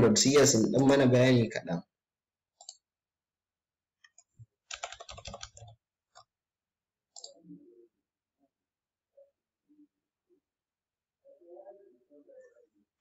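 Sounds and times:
keyboard typing: 0:04.0 - 0:06.3.

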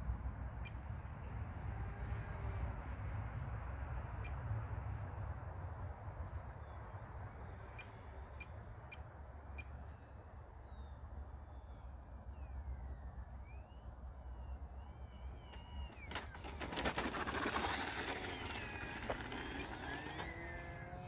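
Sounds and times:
distant biplane engine drone: 0:00.0 - 0:21.0
faint bird chirps: 0:05.8 - 0:16.4.

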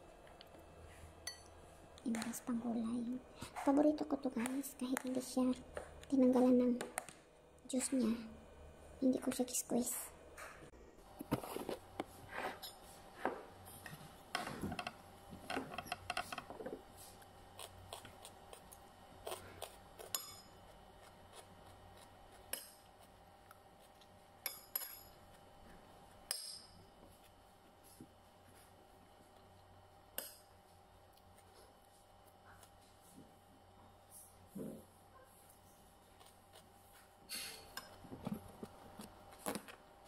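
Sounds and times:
spoon clinking against a plate: 0:20.0 - 0:20.6.

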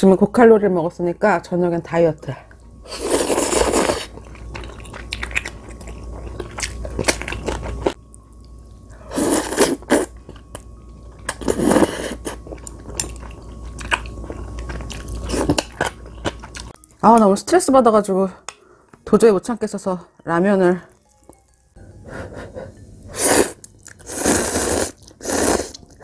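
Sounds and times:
chewing and slurping noodles: 0:02.5 - 0:08.0, 0:08.9 - 0:16.8, 0:23.1 - 0:26.0.

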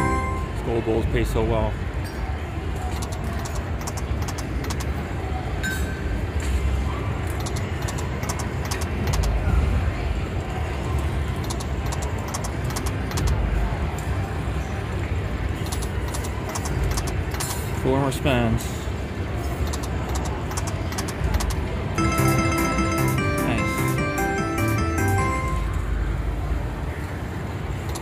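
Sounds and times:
slot machine jingling clicks: 0:03.0 - 0:04.9, 0:19.6 - 0:25.7.

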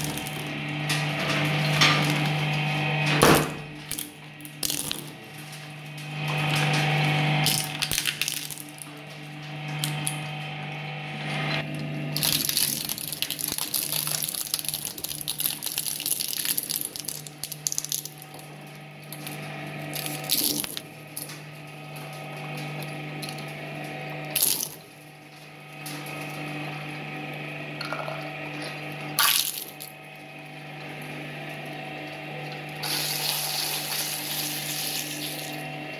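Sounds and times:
shredder humming: 0:00.0 - 0:35.9
plastic crunching and cracking: 0:07.5 - 0:08.8, 0:12.2 - 0:18.2.

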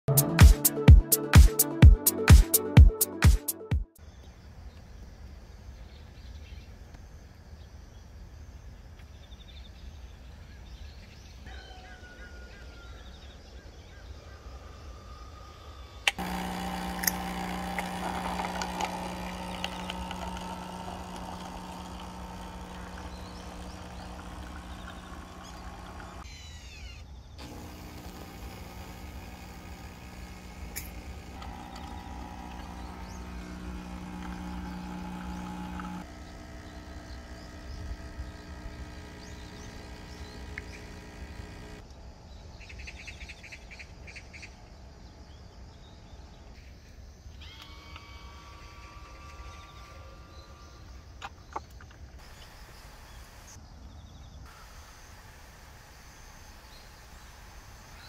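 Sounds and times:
coffee machine pump humming: 0:16.1 - 0:26.3, 0:27.4 - 0:42.0, 0:52.2 - 0:53.6, 0:54.5 - 0:58.0
coffee pouring into paper cup: 0:16.2 - 0:26.2, 0:27.4 - 0:41.8.

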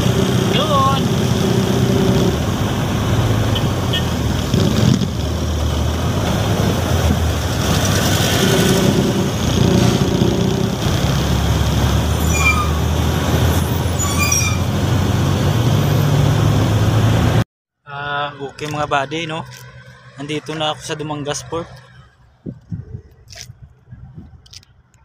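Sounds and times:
truck diesel engine running: 0:00.0 - 0:17.4
brief high squeaks: 0:12.2 - 0:12.8, 0:13.6 - 0:14.7.

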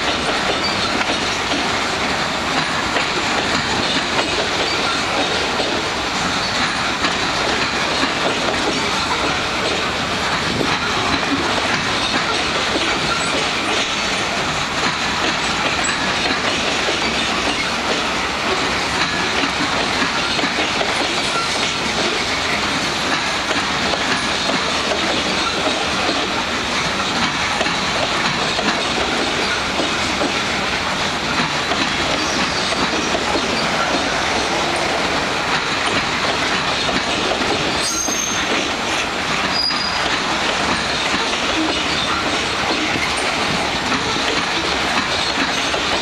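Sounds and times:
freight train rolling past: 0:00.0 - 0:46.0
wheels clattering over rail joints: 0:00.0 - 0:46.0
high wheel squeals: 0:37.7 - 0:38.6, 0:39.5 - 0:40.1.

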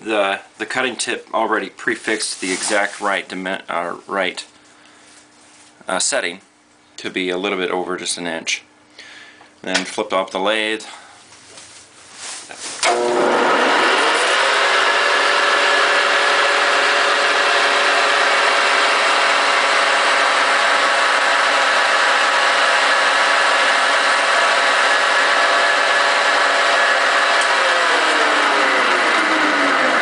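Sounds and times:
lathe motor winding down: 0:12.8 - 0:30.0
metal lathe running: 0:12.8 - 0:30.0.

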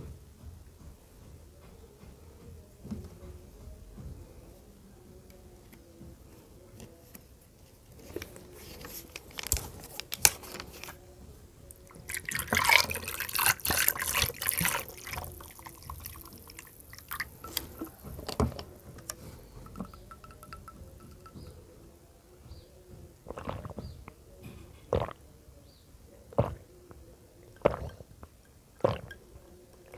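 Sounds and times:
tea pouring over ice: 0:12.0 - 0:18.5.

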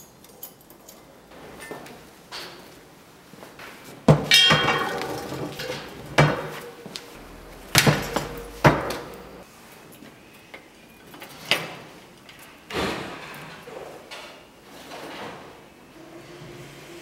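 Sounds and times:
metallic ringing: 0:04.3 - 0:09.4.

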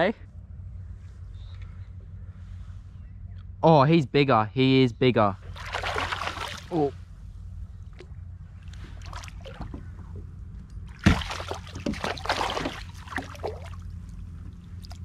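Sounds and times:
fish splashing in water: 0:05.5 - 0:06.9, 0:08.9 - 0:10.2, 0:10.8 - 0:15.0.

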